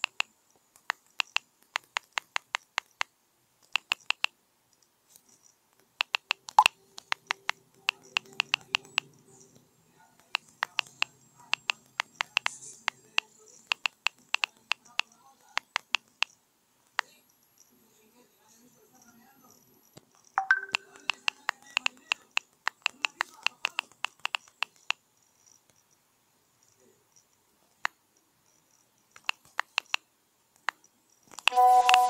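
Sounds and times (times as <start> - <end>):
phone keyboard clicks: 0.0 - 4.4, 6.0 - 9.1, 10.2 - 16.4, 20.4 - 25.0, 29.1 - 30.0, 30.6 - 32.0
message sent pop: 20.4 - 21.3.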